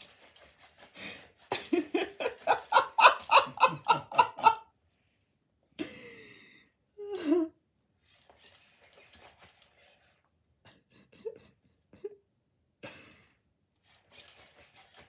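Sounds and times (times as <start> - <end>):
person laughing: 1.0 - 4.7, 7.0 - 7.5.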